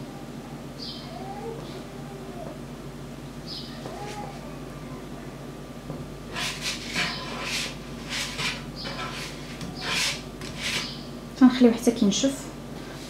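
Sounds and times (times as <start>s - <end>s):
spatula scraping frying pan: 6.3s - 11.0s.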